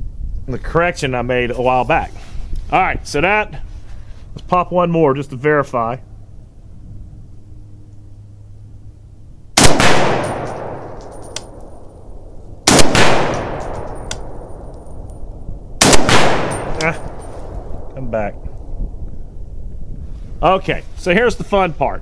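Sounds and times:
rifle shots: 9.6 - 11.7, 12.6 - 14.9, 15.8 - 17.9.

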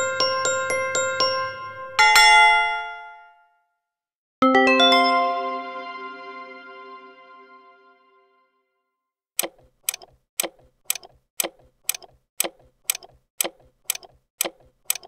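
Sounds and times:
clock ticking: 9.4 - 15.0.

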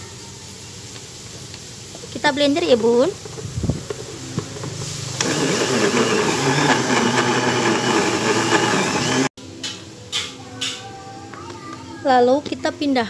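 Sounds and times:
blender motor running: 5.1 - 9.3.

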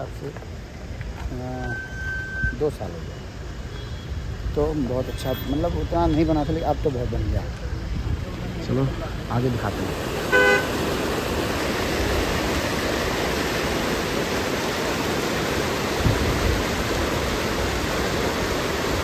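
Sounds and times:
running water rushing: 0.0 - 19.0.

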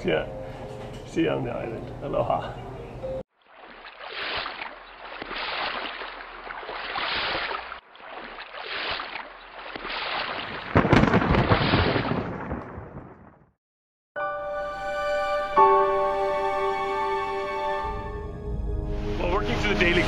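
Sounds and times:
thunder rumble: 10.6 - 13.5.

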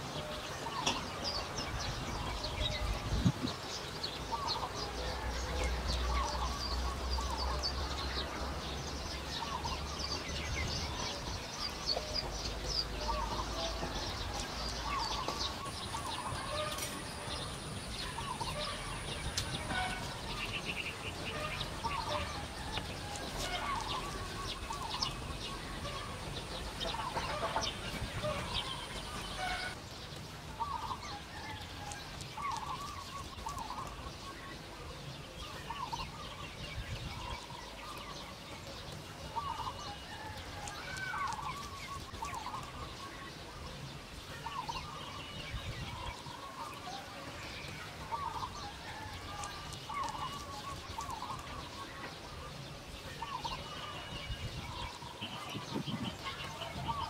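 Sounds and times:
fowl clucking: 26.8 - 29.8.

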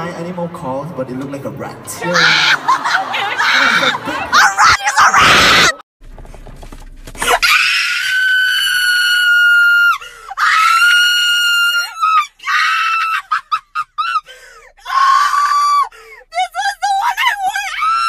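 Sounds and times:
woman screaming excitedly: 2.1 - 5.8, 7.3 - 14.2, 14.8 - 15.9, 16.8 - 18.0.

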